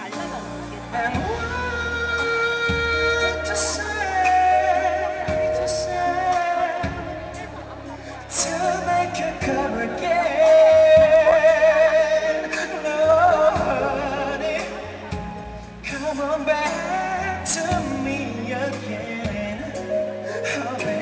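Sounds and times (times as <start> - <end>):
loud backing music: 0.0 - 21.0
man singing into a microphone: 0.0 - 21.0.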